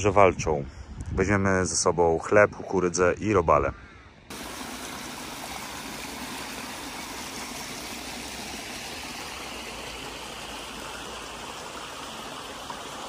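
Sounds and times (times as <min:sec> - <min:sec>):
stream splashing over weir: 0:04.3 - 0:13.0.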